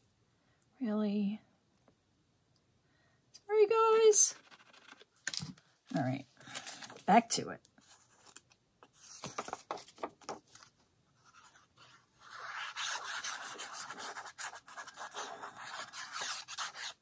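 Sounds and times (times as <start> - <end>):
paper rustling: 7.8 - 17.0
glue nozzle scratching on paper: 12.2 - 17.0.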